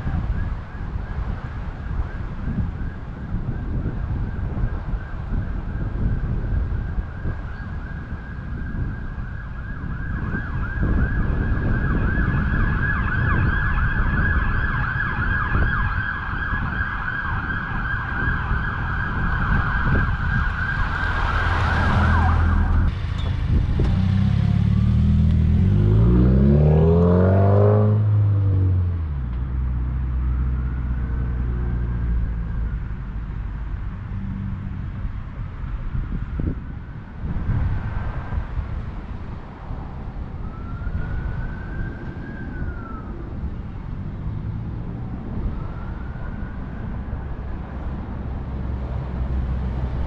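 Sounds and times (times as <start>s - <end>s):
wind noise: 0.0s - 50.0s
car accelerating past: 20.8s - 29.0s.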